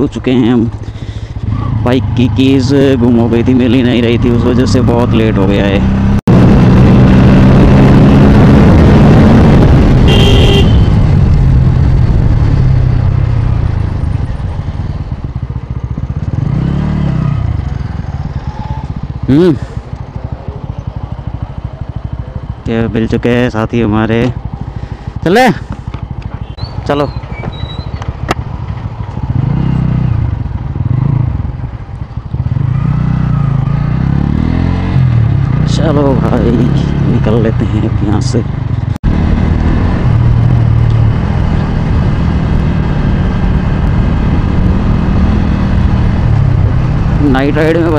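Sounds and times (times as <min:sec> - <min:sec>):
motorcycle engine running: 0:00.0 - 0:47.9.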